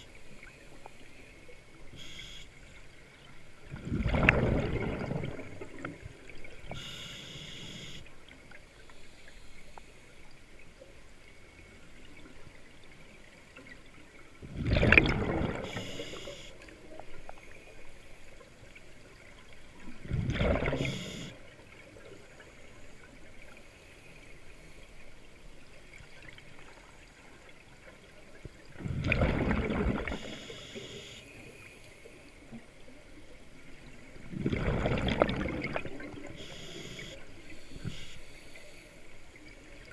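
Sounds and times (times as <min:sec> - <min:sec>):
regulator exhaled bubbles gushing: 0:03.6 - 0:06.9, 0:14.4 - 0:16.2, 0:19.9 - 0:21.2, 0:28.7 - 0:30.4, 0:34.2 - 0:36.7.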